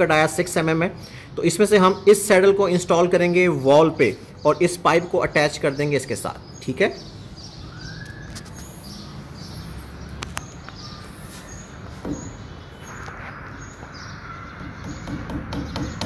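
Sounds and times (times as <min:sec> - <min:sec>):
birds chirping: 0:00.0 - 0:16.0
hammer tapping a nail: 0:14.6 - 0:16.0.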